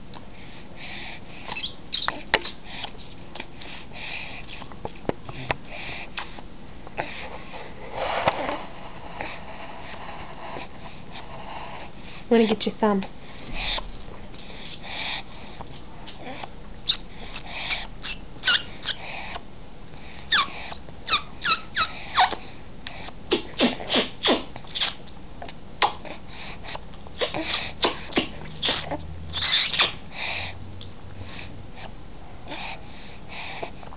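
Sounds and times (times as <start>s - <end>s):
baby short squeaks: 1.5s - 2.6s, 18.0s - 19.0s, 20.3s - 22.4s, 28.6s - 30.0s
baby sucking and smacking: 23.3s - 30.0s.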